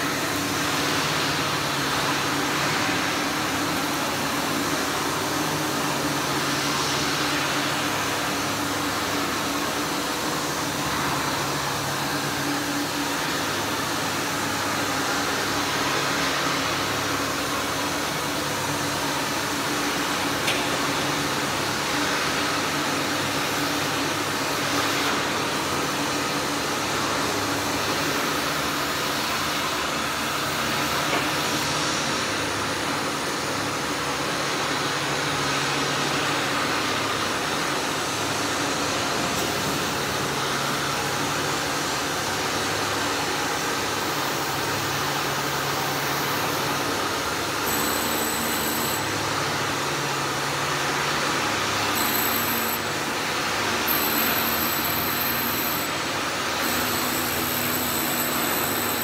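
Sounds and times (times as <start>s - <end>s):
industrial machinery hum: 0.0s - 59.0s
faint high whine: 47.5s - 50.4s, 51.8s - 59.0s.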